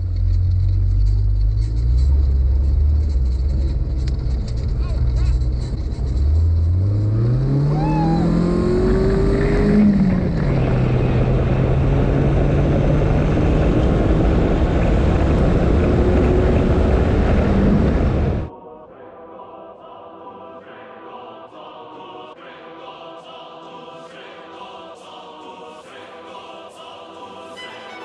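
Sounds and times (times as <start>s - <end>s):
buggy engine accelerating: 0.0s - 18.5s
tires crunching on gravel: 0.0s - 18.5s
wind rushing: 7.2s - 18.5s.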